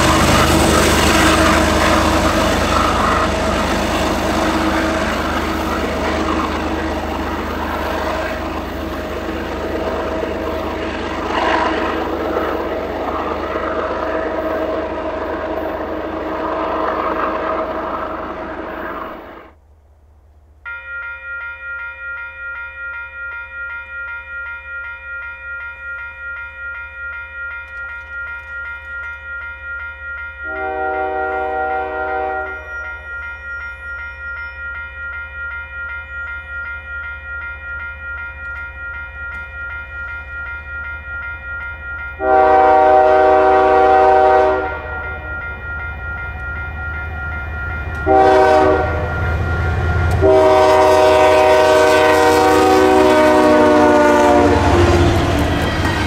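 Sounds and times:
crossing warning bell ringing: 0.0 - 19.3, 20.6 - 56.0
locomotive engine and wheel rumble: 0.0 - 19.5, 36.4 - 56.0
locomotive horn blasts: 30.4 - 32.8, 42.2 - 45.1, 48.0 - 55.6.

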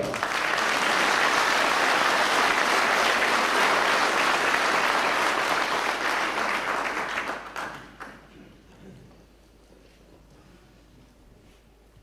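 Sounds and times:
audience applauding: 0.0 - 8.4.

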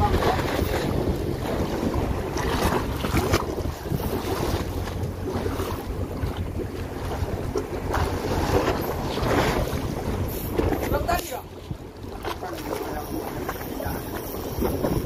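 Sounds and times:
sea waves: 0.0 - 15.0
wind buffeting microphone: 0.0 - 15.0.

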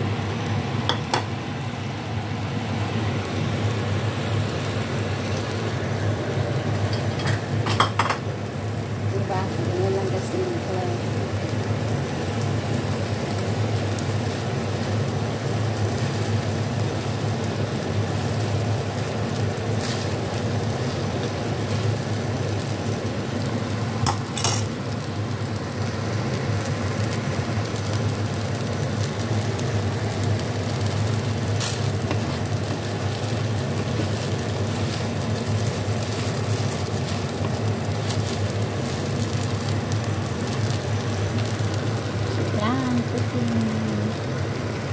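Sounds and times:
noodles sizzling in a wok: 0.0 - 44.9
spatula tossing food: 30.7 - 41.3.

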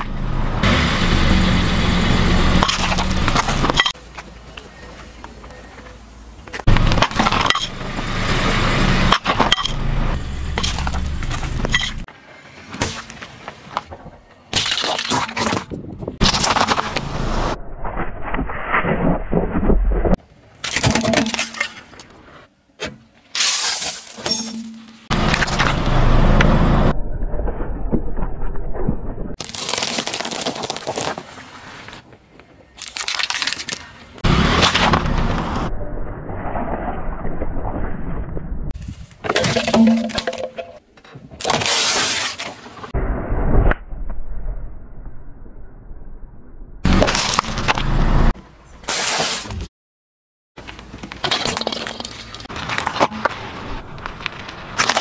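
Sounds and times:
car tyre crushing hard objects: 2.5 - 4.0, 6.6 - 12.1, 14.5 - 17.6, 32.8 - 35.7, 46.8 - 48.0, 50.7 - 55.0
candy shells and plastic cracking: 32.8 - 33.9.

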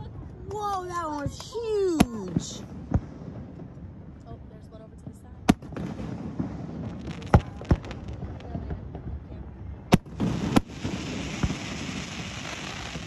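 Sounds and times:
fireworks booming: 0.0 - 13.0
fireworks hiss: 10.2 - 13.0.

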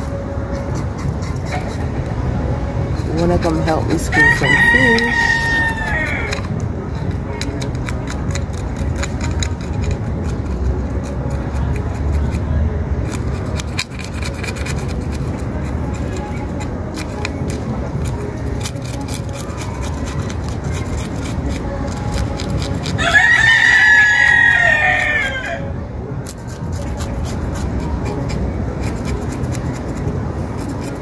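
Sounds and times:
rooster crowing: 4.1 - 6.4, 23.0 - 25.7
knife scraping fish scales: 5.0 - 23.9, 26.2 - 31.0.

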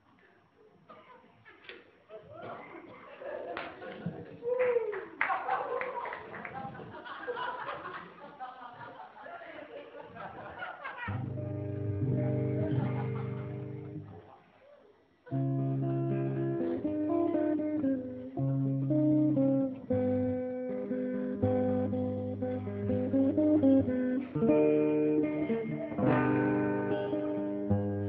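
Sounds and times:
guitar playing slow chords: 11.1 - 14.1, 15.3 - 28.0.

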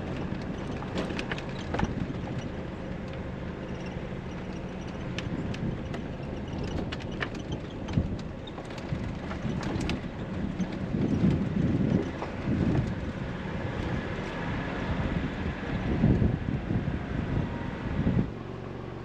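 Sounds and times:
heavy vehicle bumps: 0.0 - 2.6, 3.8 - 14.3
clicks and rattles: 0.0 - 3.2, 4.5 - 13.0
vehicle driving rumble: 0.0 - 19.0.

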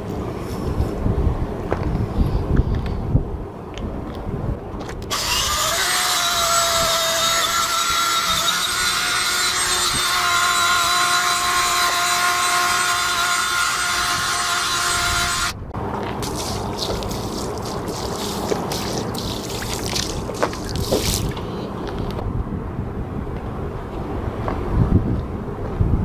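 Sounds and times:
wire brush scrubbing asphalt: 5.1 - 21.7.

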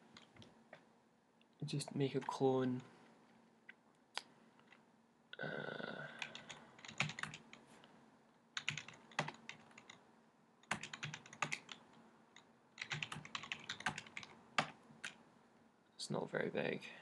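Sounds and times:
computer keyboard typing: 6.2 - 7.6, 8.6 - 10.0, 10.6 - 11.8, 12.4 - 15.2.

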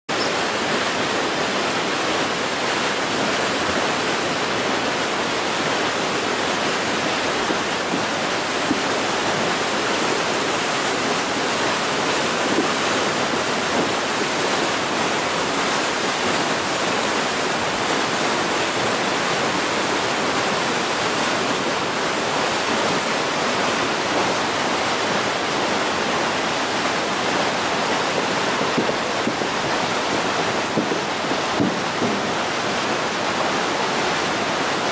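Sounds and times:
stream rushing over rocks: 0.1 - 34.9.

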